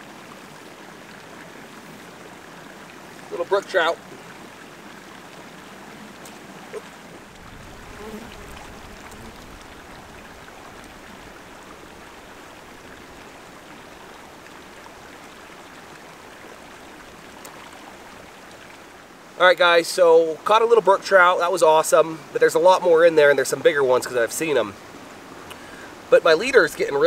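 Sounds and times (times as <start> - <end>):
water lapping at rocky shore: 0.0 - 19.4.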